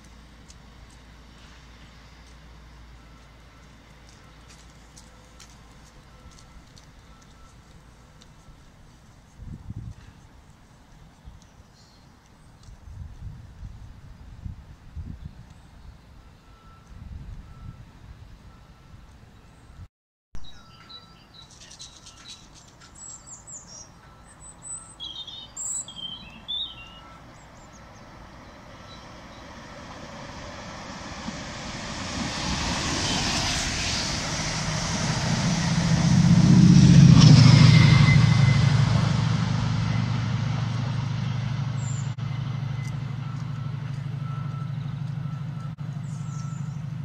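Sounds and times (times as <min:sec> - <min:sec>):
train passing at speed: 0:00.0 - 0:12.2, 0:22.1 - 0:47.0
diesel locomotive engine drone: 0:00.0 - 0:47.0
small birds chirping: 0:20.4 - 0:29.5, 0:46.0 - 0:46.9.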